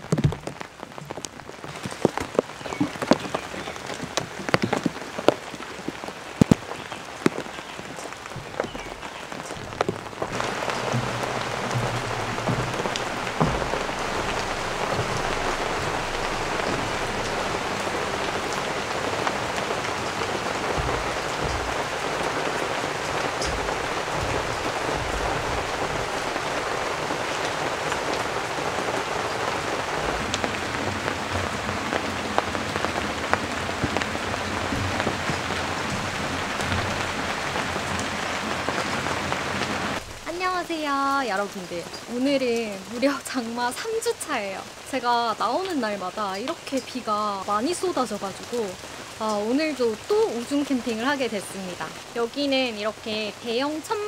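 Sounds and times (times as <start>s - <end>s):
soft low knocks: 0.0s - 40.9s
heavy rain pouring: 0.0s - 54.0s.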